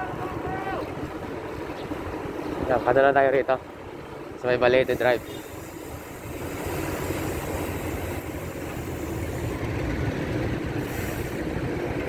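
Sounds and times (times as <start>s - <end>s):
wind rumble on microphone: 0.0s - 3.2s
bicycle road noise: 0.0s - 12.0s
traffic engines: 0.0s - 12.0s.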